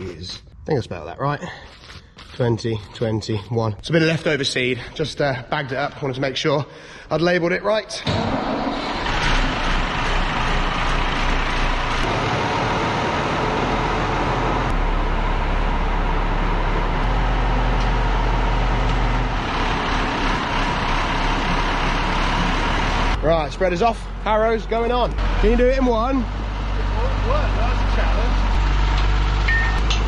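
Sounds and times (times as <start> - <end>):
tractor diesel engine running: 8.4 - 30.0.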